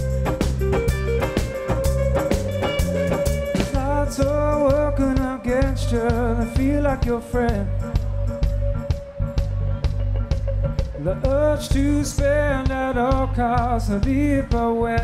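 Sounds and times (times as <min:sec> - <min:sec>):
held tone: 0:00.0 - 0:10.7
wavering melody line: 0:00.0 - 0:11.2
drum beat: 0:00.0 - 0:14.8
bass: 0:00.0 - 0:15.0.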